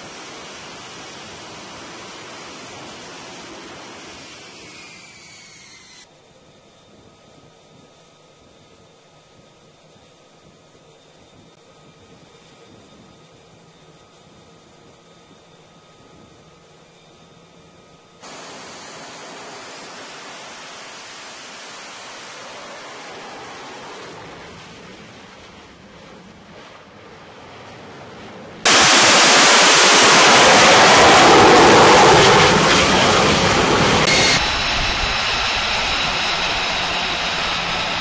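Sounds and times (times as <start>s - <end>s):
jet engine roaring: 0.0s - 6.1s, 18.2s - 38.0s.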